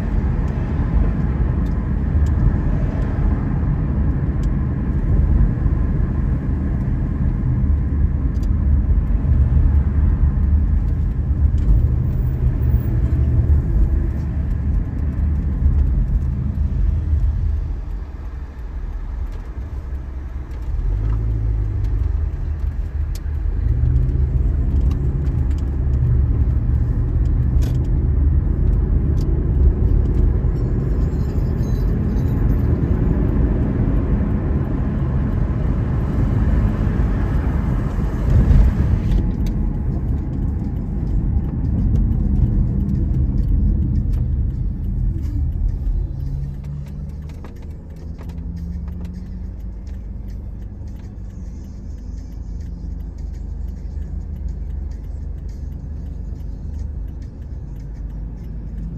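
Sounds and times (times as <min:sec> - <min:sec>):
car tyre and engine rumble: 0:00.0 - 0:58.9.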